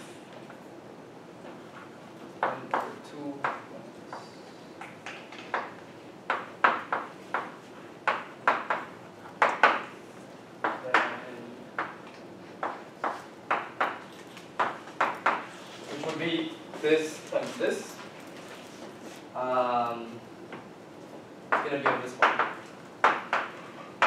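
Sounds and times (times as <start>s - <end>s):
chalk tapping on blackboard: 6.3s - 9.9s, 12.6s - 15.5s, 21.5s - 23.6s.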